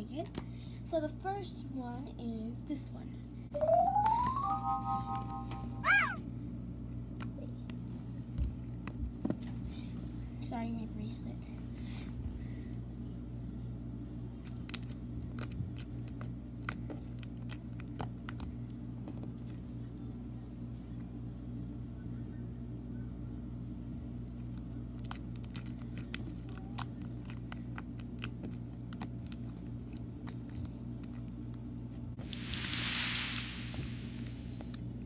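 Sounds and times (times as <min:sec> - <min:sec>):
steady low hum: 0:00.0 - 0:35.0
slime clicks and crackles: 0:14.4 - 0:18.5, 0:24.5 - 0:31.4.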